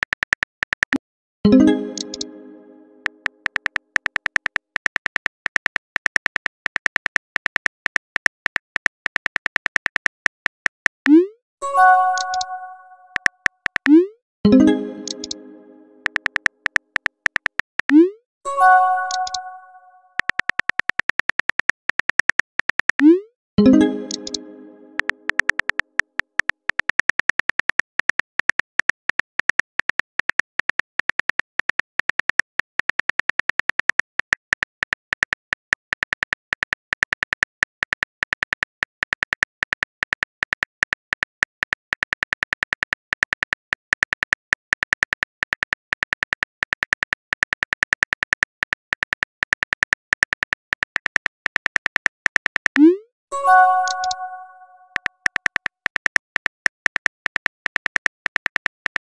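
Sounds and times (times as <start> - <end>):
phone keyboard clicks: 1.8 - 2.3, 12.1 - 14.0, 16.0 - 18.0, 19.0 - 19.5, 23.7 - 52.9, 53.7 - 59.0.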